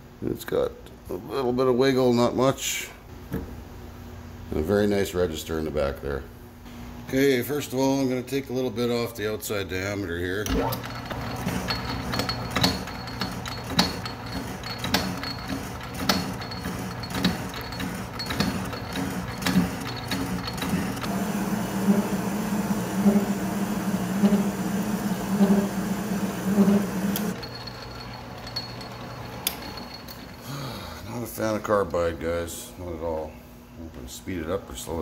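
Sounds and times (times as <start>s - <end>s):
lathe motor hum: 10.8s - 30.4s
pulsing lathe cutting chatter: 10.9s - 30.3s.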